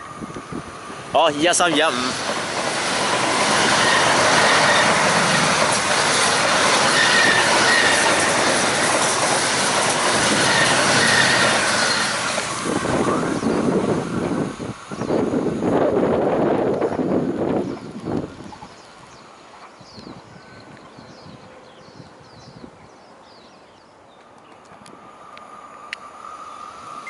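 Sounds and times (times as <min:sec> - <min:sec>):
train wheels rushing on rails: 0:00.0 - 0:21.4, 0:24.2 - 0:27.0
faint high wheel squeal: 0:06.8 - 0:08.2, 0:10.3 - 0:12.3, 0:24.9 - 0:27.0.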